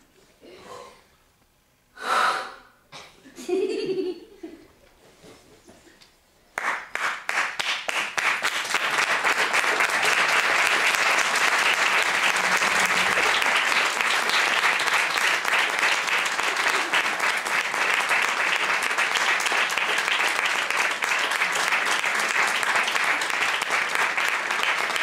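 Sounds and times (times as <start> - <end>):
audience applauding: 6.6 - 25.0.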